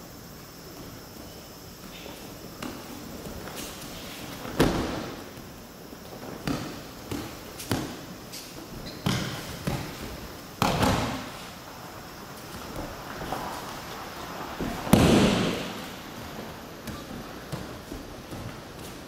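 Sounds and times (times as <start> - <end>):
bodies thudding on mats: 4.2 - 5.5, 6.1 - 11.4, 14.6 - 19.0.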